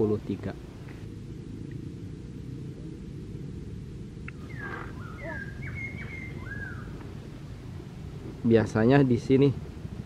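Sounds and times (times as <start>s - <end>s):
low rumble: 0.0s - 10.0s
bird whistling: 4.4s - 6.9s.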